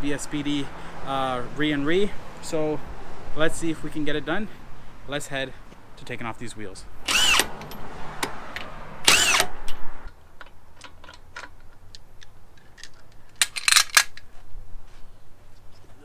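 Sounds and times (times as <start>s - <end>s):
power tool motor spinning: 7.1s - 7.8s, 9.0s - 9.7s.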